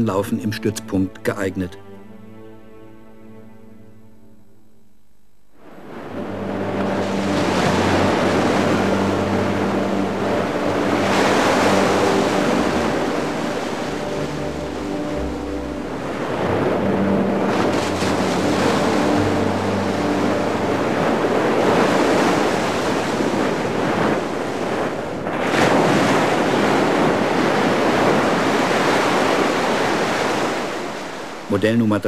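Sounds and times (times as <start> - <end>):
waves breaking and sloshing: 5.5 - 32.0
wind buffeting microphone: 15.8 - 31.4.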